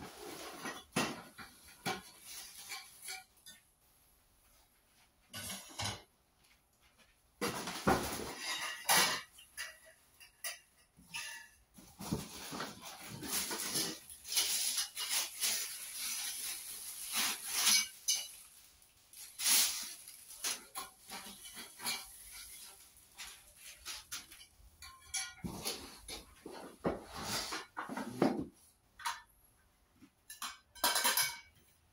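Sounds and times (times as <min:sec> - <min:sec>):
metal tubes clinking and rattling: 0:08.1 - 0:26.5, 0:30.3 - 0:31.6
plastic wrap crinkling: 0:12.0 - 0:24.5.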